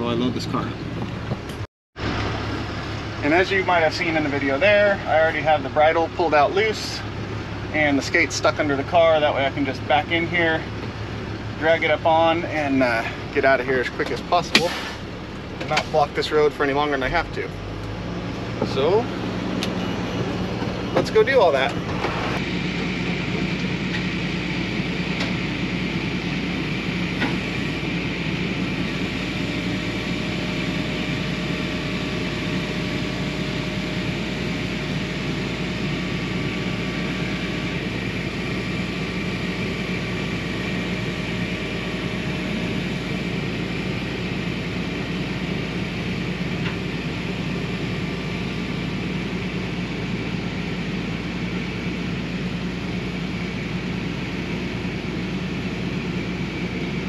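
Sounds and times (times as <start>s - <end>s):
faint whine: 18.6s - 57.0s.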